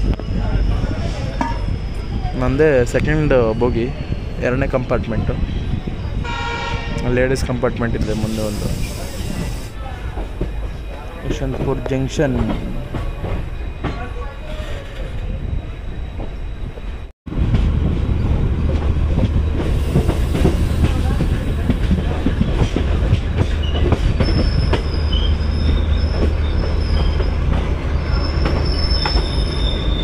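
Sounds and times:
train rumble: 0:00.0 - 0:30.0
high thin wheel squeal: 0:23.6 - 0:30.0.

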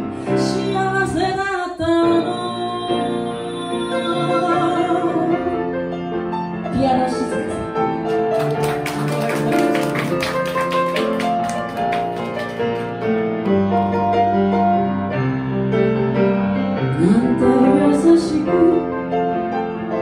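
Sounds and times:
solo piano ballad: 0:00.0 - 0:20.0
woman singing: 0:00.3 - 0:05.7, 0:06.7 - 0:07.7, 0:16.9 - 0:19.0.

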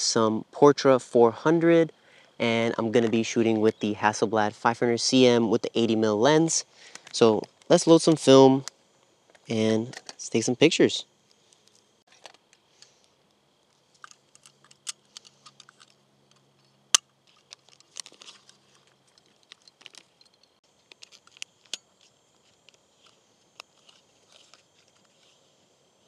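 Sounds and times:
paper crinkling: 0:17.2 - 0:25.4.

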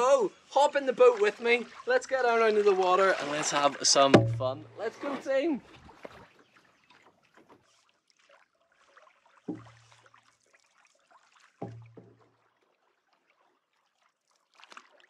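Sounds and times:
water trickling along hull: 0:00.0 - 0:15.0
paddle thumps on canoe hull: 0:03.1 - 0:06.3, 0:09.5 - 0:10.0, 0:11.6 - 0:12.3.

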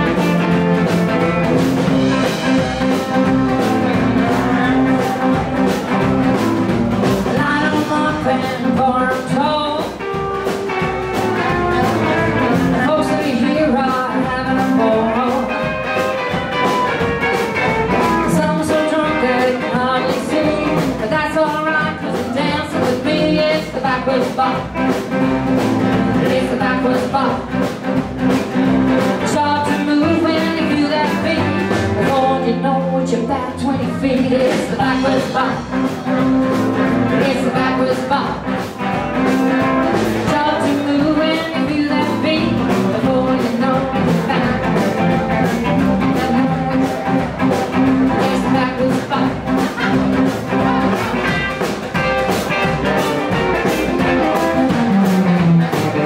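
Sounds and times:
live blues band playing: 0:00.0 - 0:56.0
woman singing: 0:07.2 - 0:10.2, 0:11.4 - 0:16.0, 0:18.0 - 0:25.3, 0:26.1 - 0:27.7, 0:29.0 - 0:38.7, 0:40.2 - 0:51.7.

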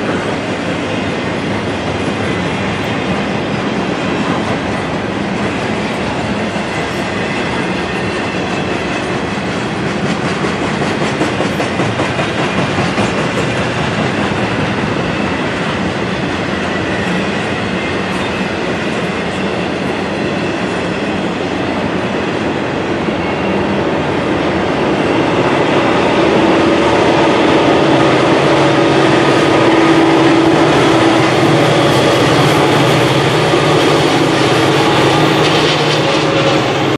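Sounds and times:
diesel locomotive engine: 0:00.0 - 0:36.9
train wheels clacking on rails: 0:00.0 - 0:36.9
freight cars rumbling past: 0:24.4 - 0:36.9.

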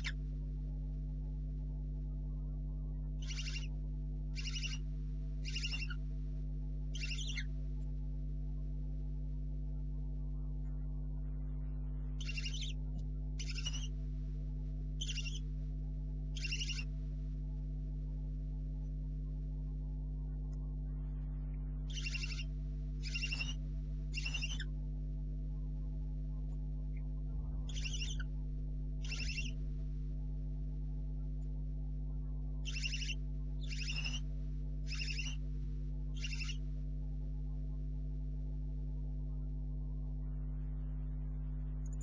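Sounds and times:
electrical hum: 0:00.0 - 0:42.0
owlets hissing calls: 0:03.2 - 0:03.7, 0:04.4 - 0:04.8, 0:05.4 - 0:05.9, 0:07.0 - 0:07.4, 0:15.0 - 0:15.4, 0:16.4 - 0:16.8, 0:21.9 - 0:22.4, 0:23.0 - 0:23.6, 0:24.2 - 0:24.6, 0:27.7 - 0:28.2, 0:29.0 - 0:29.6, 0:32.7 - 0:34.2, 0:34.9 - 0:35.4, 0:36.2 - 0:36.6.

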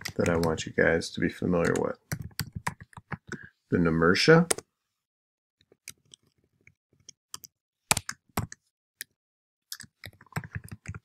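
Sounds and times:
typing on computer keyboard: 0:01.6 - 0:03.4, 0:09.7 - 0:11.0.

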